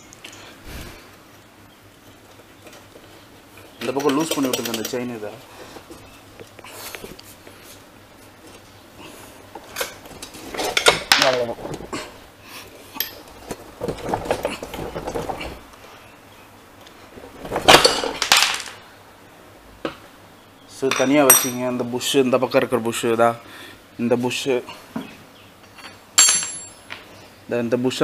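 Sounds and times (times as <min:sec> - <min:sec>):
metal parts clinking and rattling: 0:09.7 - 0:12.0, 0:13.0 - 0:15.7, 0:17.3 - 0:18.8, 0:25.8 - 0:27.0.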